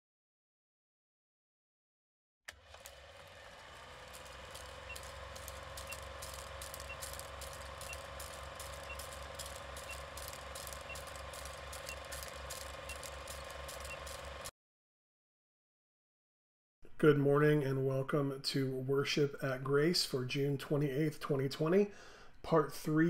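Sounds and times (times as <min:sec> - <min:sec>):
film projector clatter: 0:02.5 - 0:14.5
projector hum: 0:02.5 - 0:14.5.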